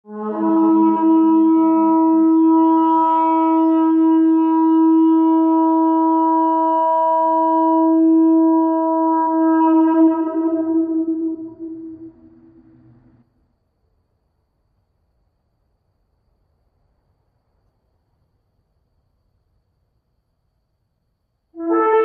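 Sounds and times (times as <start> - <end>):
ram's-horn trumpet blast: 0.1 - 13.2, 21.6 - 22.0.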